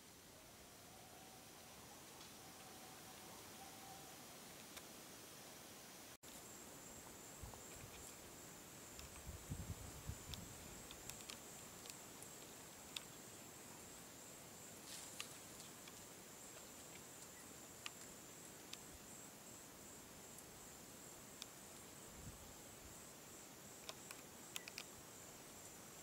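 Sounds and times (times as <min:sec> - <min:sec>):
faint ticks: 0:10.1 - 0:13.4, 0:14.9 - 0:19.0, 0:21.3 - 0:21.9, 0:23.7 - 0:25.0.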